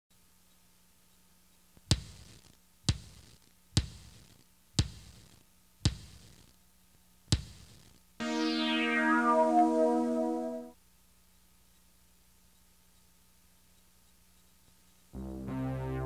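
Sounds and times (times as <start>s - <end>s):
held synthesizer chord: 8.2s - 10.8s, 15.2s - 16.0s.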